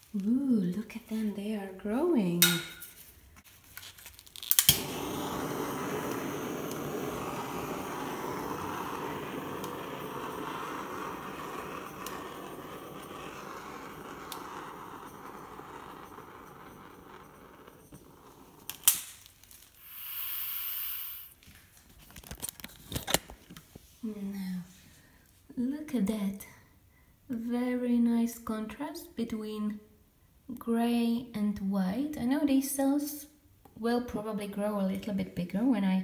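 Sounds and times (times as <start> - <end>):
gas torch hissing: 4.5 - 21.4.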